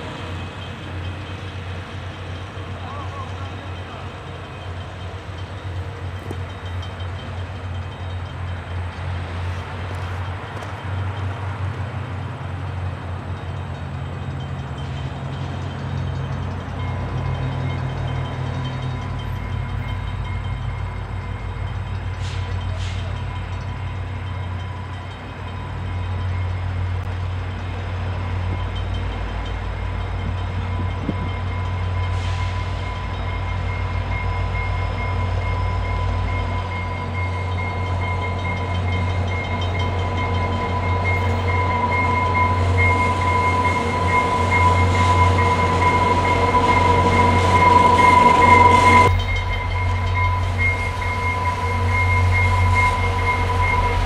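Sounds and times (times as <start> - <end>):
diesel locomotive engines droning: 0.0 - 54.0
high whine: 39.8 - 54.0.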